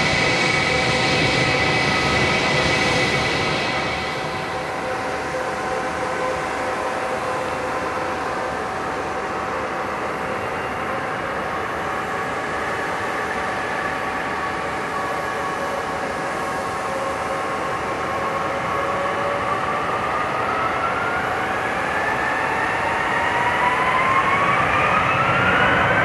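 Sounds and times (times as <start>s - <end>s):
jet engines whining: 0.0s - 5.4s.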